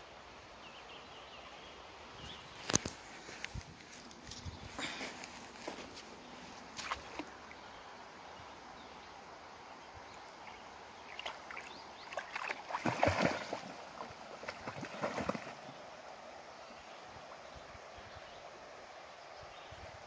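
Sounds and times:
dog splashing in water: 0:11.1 - 0:15.6
dog swimming: 0:11.2 - 0:15.7.

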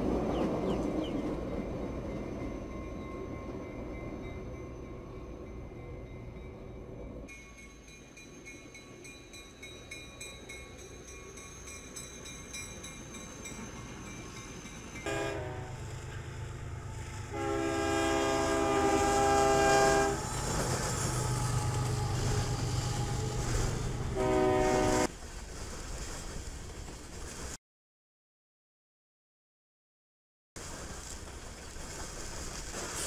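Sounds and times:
locomotive engine rumble: 0:12.5 - 0:25.1
locomotive air horn blasts: 0:15.0 - 0:15.9, 0:17.2 - 0:25.1
freight cars rolling past: 0:15.7 - 0:25.1.

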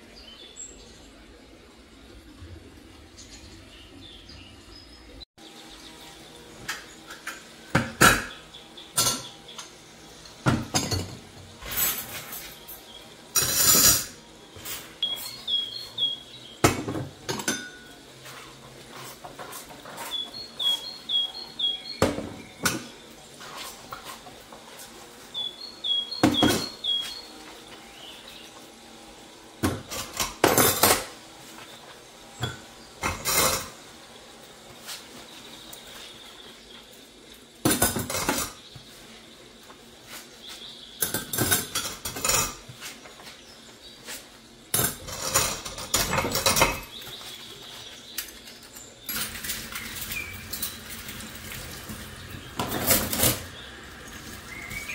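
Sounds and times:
dishes and cutlery clinking: 0:06.7 - 0:15.4, 0:16.6 - 0:20.9, 0:29.6 - 0:31.1, 0:32.4 - 0:33.8, 0:37.6 - 0:38.6, 0:41.0 - 0:42.9, 0:44.7 - 0:47.4, 0:48.1 - 0:51.2, 0:52.6 - 0:53.5.

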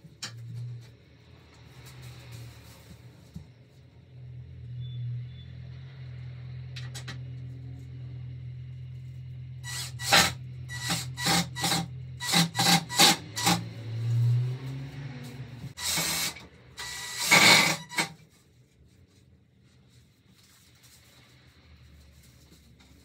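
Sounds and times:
cordless drill driving screw into wood: 0:09.7 - 0:13.6, 0:15.8 - 0:18.1.

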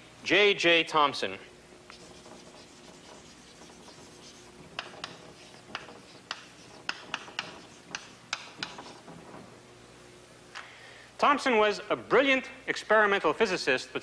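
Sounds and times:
chalk scratching on blackboard: 0:01.9 - 0:09.1
chalk tapping on board: 0:01.9 - 0:09.1.

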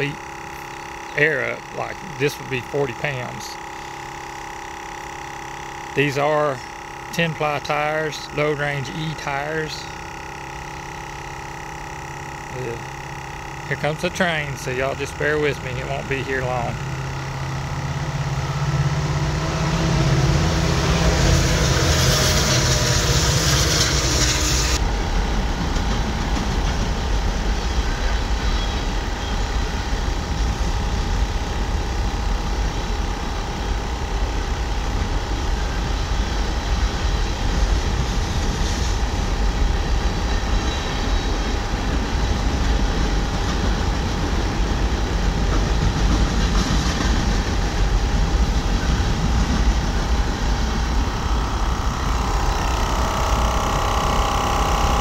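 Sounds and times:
portable air compressor running: 0:00.0 - 0:55.0
passing train rumbling: 0:18.0 - 0:28.4, 0:41.8 - 0:54.9.

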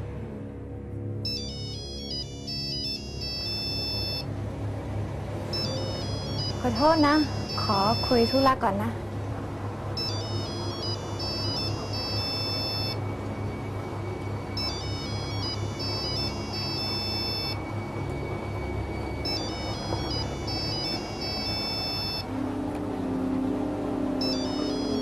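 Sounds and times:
mobile phone ringtone: 0:01.2 - 0:04.3, 0:05.5 - 0:08.6, 0:10.0 - 0:22.3, 0:24.2 - 0:25.0
background music score: 0:08.9 - 0:25.0.

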